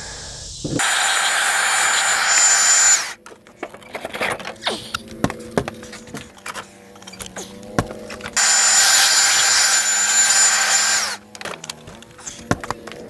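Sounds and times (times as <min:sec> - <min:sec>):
leaf blower whining: 0:00.0 - 0:13.0
hive boxes knocking and scraping: 0:03.2 - 0:08.4, 0:11.2 - 0:13.0.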